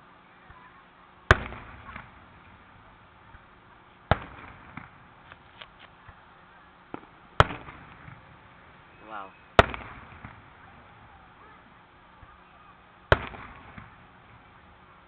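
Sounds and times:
faint firework pops: 0:01.3 - 0:02.2, 0:04.1 - 0:06.2, 0:06.9 - 0:08.3, 0:09.6 - 0:10.7, 0:13.1 - 0:14.5
firework shells booming: 0:01.3 - 0:05.2, 0:06.9 - 0:11.2, 0:13.1 - 0:14.8.

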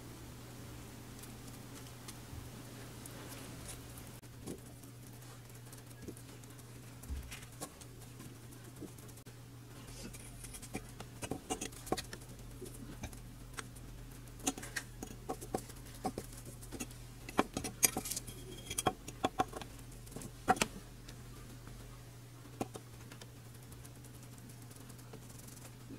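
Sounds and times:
metal tool tapping and scraping: 0:14.4 - 0:19.7.

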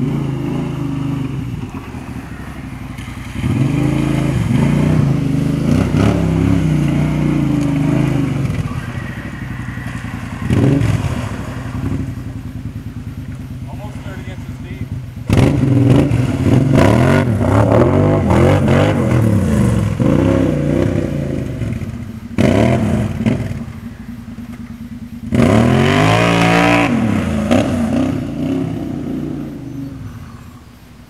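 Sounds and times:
atv engine revving: 0:00.0 - 0:31.0.

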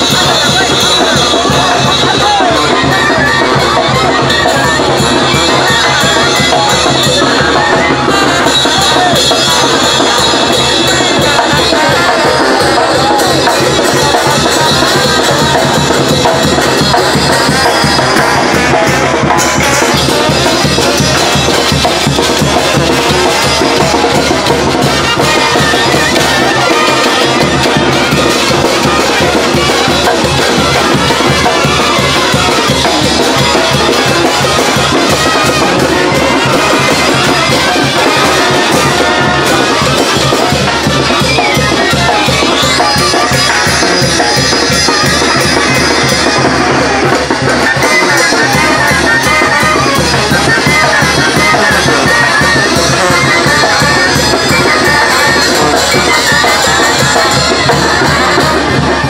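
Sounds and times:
brass band playing: 0:00.0 - 0:59.0.

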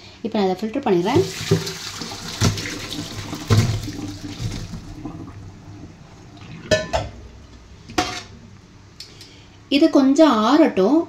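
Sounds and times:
water pouring into colander: 0:01.0 - 0:06.8.

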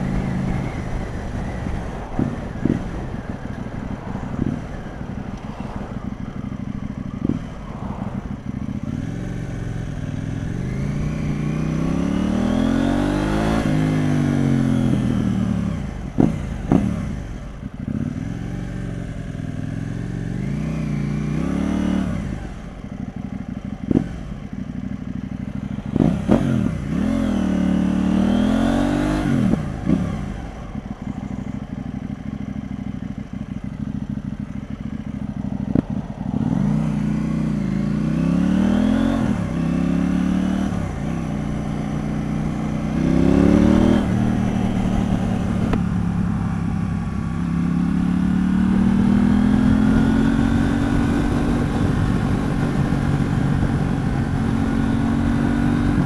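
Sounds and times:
wind rush: 0:00.0 - 0:11.2, 0:49.0 - 0:56.0
motorcycle engine revving: 0:00.0 - 0:56.0.

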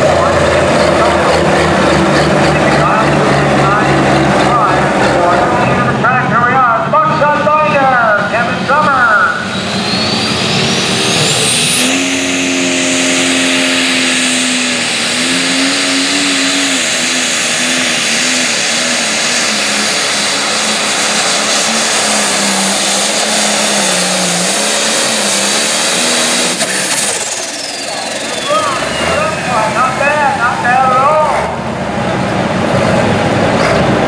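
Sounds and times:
diesel tractor engine at full throttle: 0:00.0 - 0:34.0
turbo whistle: 0:09.4 - 0:14.6.

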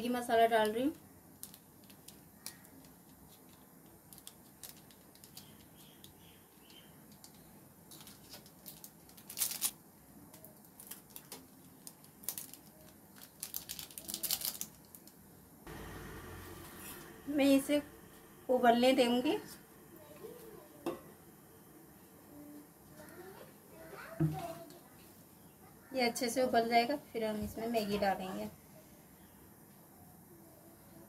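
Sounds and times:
foil sachets crinkling: 0:01.4 - 0:06.2, 0:07.2 - 0:09.8, 0:10.4 - 0:15.3.

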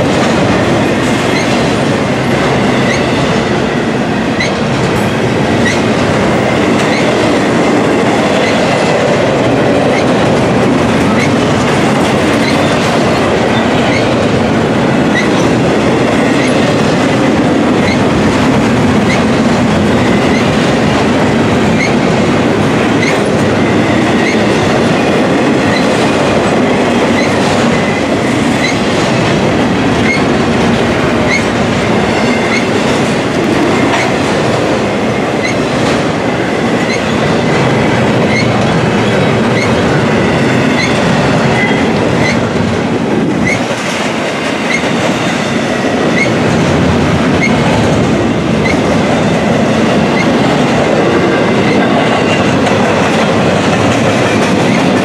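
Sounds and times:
train wheels rumbling on rails: 0:00.0 - 0:55.0
high wheel squeals: 0:38.3 - 0:38.6.

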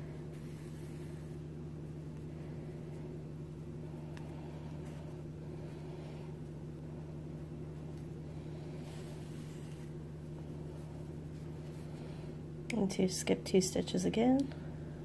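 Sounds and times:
appliance or fan humming: 0:00.0 - 0:15.0.

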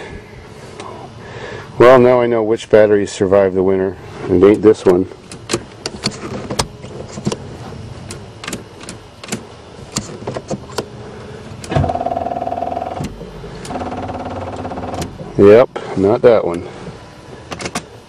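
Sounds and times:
car starter buzzing chatter: 0:11.6 - 0:15.6.

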